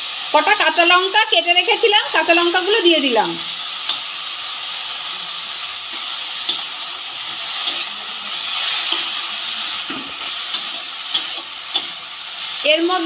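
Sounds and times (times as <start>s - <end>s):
vegetables sizzling in oil: 0.0s - 13.0s
spatula clacking against pan: 9.9s - 12.0s.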